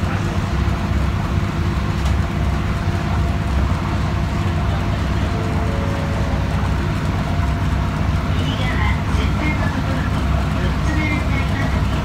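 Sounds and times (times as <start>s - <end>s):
boat engine droning: 0.2s - 12.0s.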